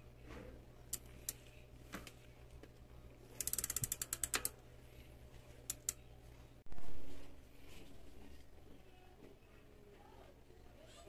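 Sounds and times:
bicycle hub ratchet clicking: 3.4s - 4.6s, 5.6s - 6.0s.

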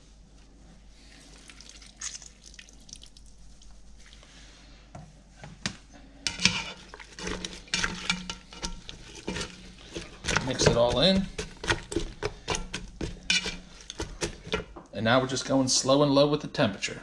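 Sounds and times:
juice dripping into a pot: 1.2s - 4.3s
spatula scraping a pot: 6.2s - 14.8s.

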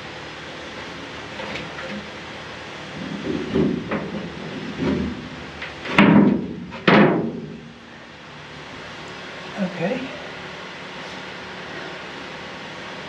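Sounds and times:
loud ringing bangs in metal room: 3.4s - 7.8s.

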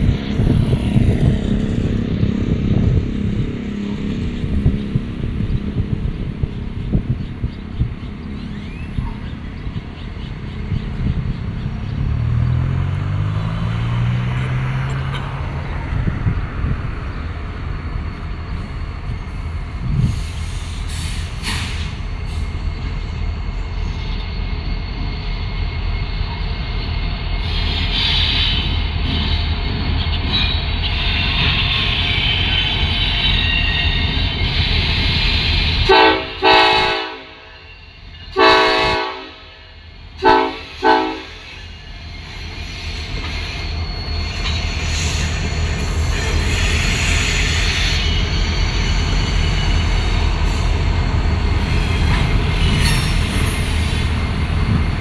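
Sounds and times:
diesel locomotive rumble: 0.0s - 55.0s
train wheels squealing: 6.5s - 11.4s, 17.1s - 35.9s, 37.4s - 38.4s, 39.5s - 54.9s
locomotive air horn blasts: 35.9s - 37.6s, 38.4s - 41.5s.

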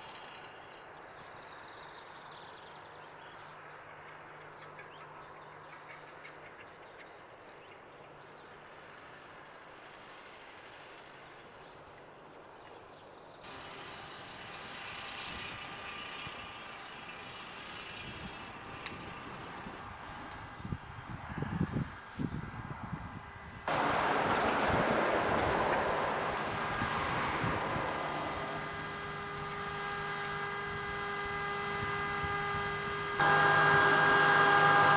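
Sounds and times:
distant tractor engine hum: 13.4s - 34.9s.

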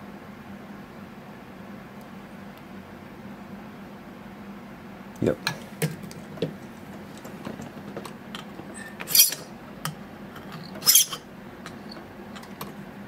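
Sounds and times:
metal file rasping on key: 8.6s - 12.7s.

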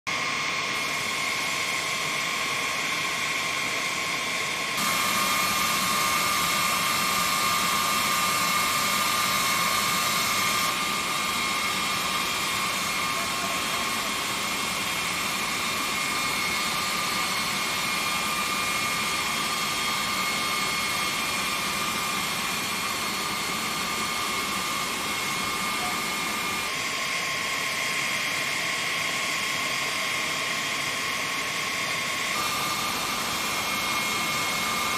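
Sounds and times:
jet turbine whine: 0.1s - 34.9s.

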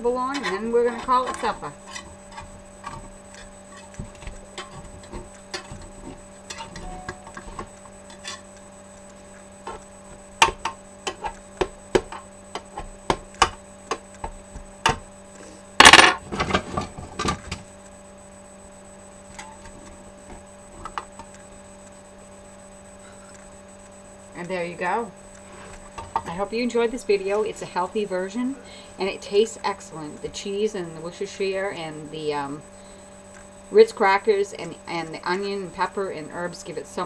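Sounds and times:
utensil clatter: 0.0s - 8.6s
electrical hum: 0.0s - 37.0s
knife scraping metal pan: 0.1s - 8.5s.

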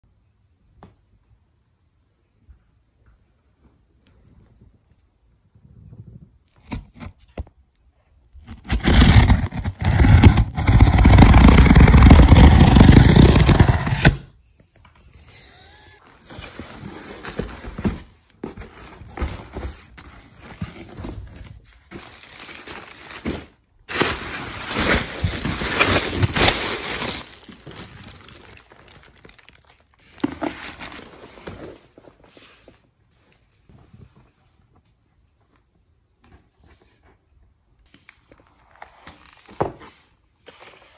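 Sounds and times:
cardboard and bubble wrap crinkling: 8.3s - 14.2s, 16.1s - 32.8s
cardboard box scraping and rustling: 8.5s - 14.3s, 16.2s - 22.4s, 23.2s - 28.3s.

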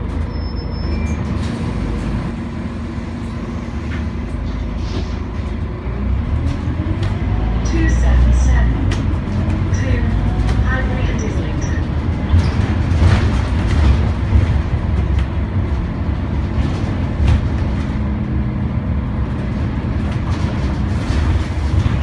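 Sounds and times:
bus engine rumble: 0.0s - 22.0s
road noise: 0.0s - 22.0s
bodywork knocks and rattles: 11.9s - 18.6s.

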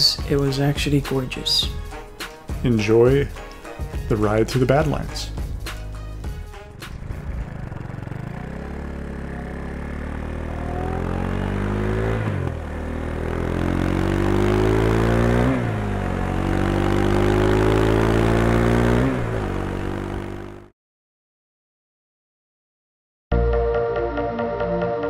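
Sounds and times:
motorcycle engine accelerating: 3.8s - 20.7s.

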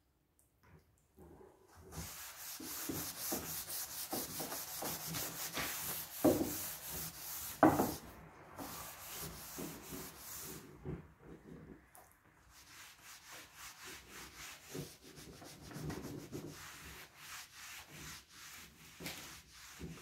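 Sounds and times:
sanding pad rubbing wood: 2.0s - 8.0s, 8.6s - 10.6s.

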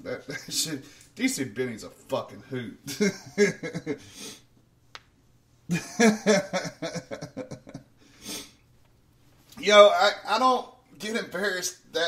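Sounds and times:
man speaking: 0.0s - 3.0s, 9.6s - 12.0s
short breath: 8.0s - 8.6s.

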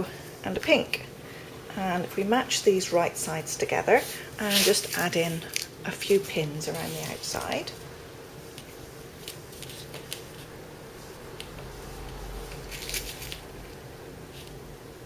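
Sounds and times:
faint steady hum: 0.0s - 15.0s
fabric rustling: 4.0s - 7.8s, 8.4s - 14.6s.

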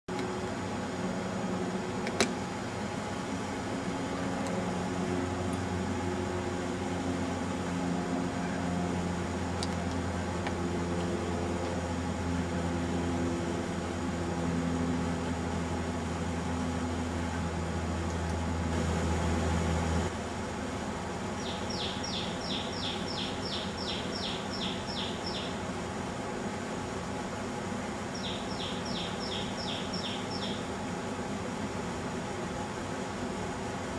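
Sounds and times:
low mechanical hum: 0.1s - 33.9s
bird singing sharp notes: 21.4s - 25.6s, 28.2s - 30.6s.

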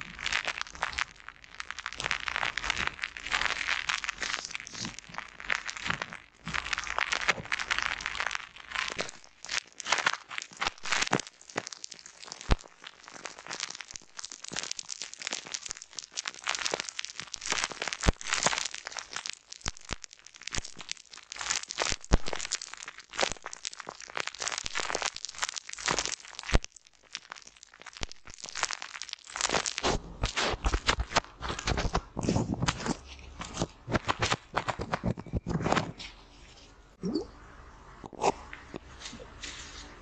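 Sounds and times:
popping candy crackling on foam: 0.0s - 36.3s
papery rustle: 29.4s - 36.8s, 38.8s - 40.0s.

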